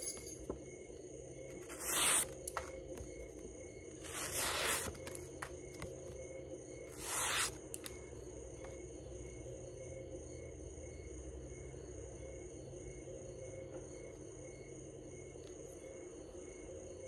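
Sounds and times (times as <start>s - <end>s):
steady low hum: 0.0s - 17.0s
knife slicing paper: 1.6s - 2.7s, 4.0s - 5.5s, 6.9s - 7.9s.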